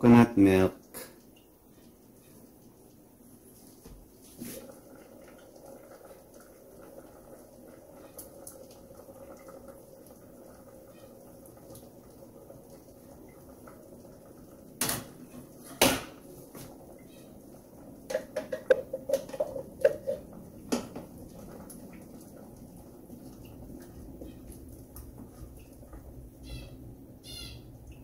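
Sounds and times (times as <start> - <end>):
liquid pouring into pot: 0.8 - 26.4
can knocking: 18.1 - 21.1.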